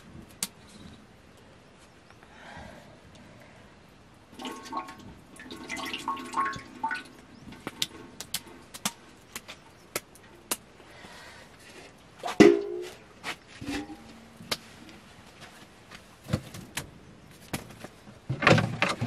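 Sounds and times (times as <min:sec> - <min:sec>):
drips plinking into metal basin: 0:04.4 - 0:09.0.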